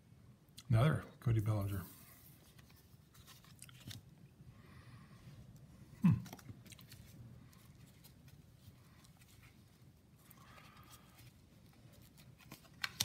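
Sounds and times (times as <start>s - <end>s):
trading cards clicking and rustling: 2.4s - 4.1s, 10.3s - 13.0s.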